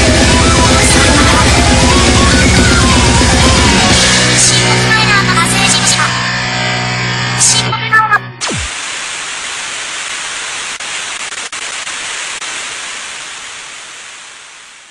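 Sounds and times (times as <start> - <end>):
music: 0.0 - 8.4
static hiss: 8.4 - 14.9.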